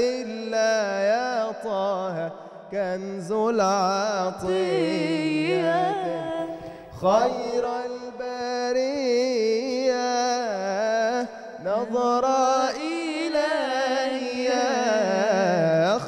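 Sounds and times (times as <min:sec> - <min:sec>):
man singing melismatic phrases: 0:02.8 - 0:16.0
breath: 0:06.5 - 0:07.0.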